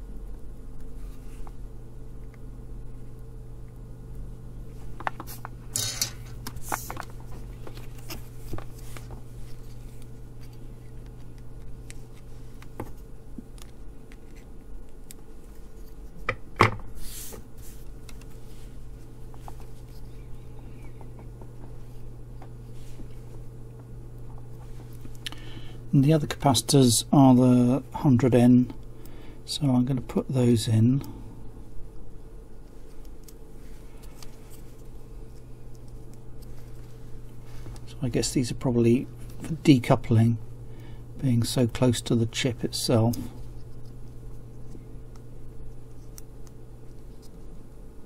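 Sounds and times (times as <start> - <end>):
low electrical hum: 0.0 - 48.0
hand tools clicking and scraping: 5.8 - 6.2.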